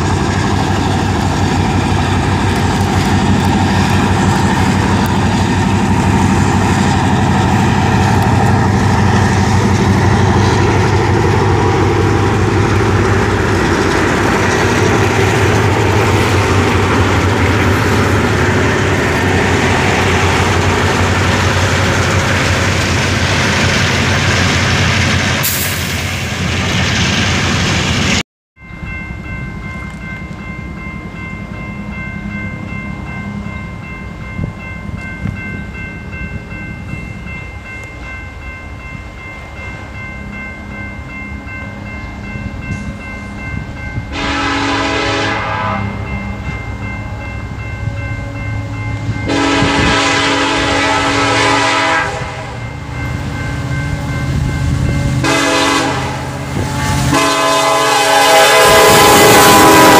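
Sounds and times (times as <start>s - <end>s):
train rumble: 0.0s - 59.9s
locomotive air horn blasts: 44.1s - 46.1s, 49.3s - 52.6s, 55.2s - 59.9s.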